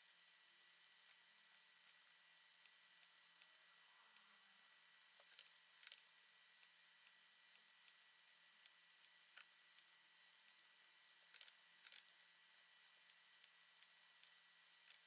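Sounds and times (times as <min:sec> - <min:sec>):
faint steady hum: 0:00.0 - 0:15.0
mouse and keyboard clicks: 0:11.3 - 0:12.1.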